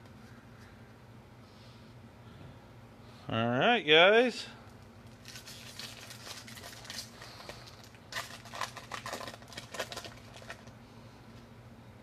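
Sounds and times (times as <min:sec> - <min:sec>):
rustling and crackling of cards: 0:04.7 - 0:10.8.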